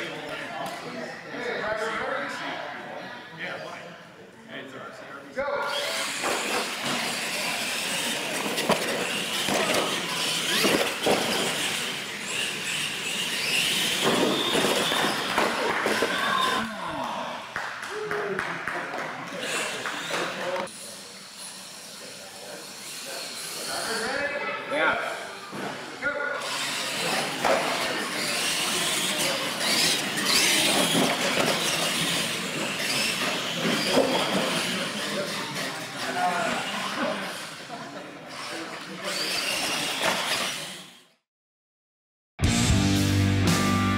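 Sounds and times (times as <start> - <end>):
toy truck motors whining: 5.7 - 16.6, 19.4 - 41.2.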